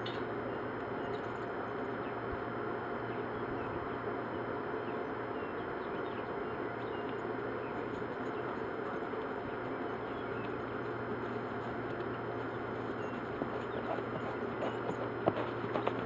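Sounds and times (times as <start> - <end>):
bird chirps: 11.9 - 15.0.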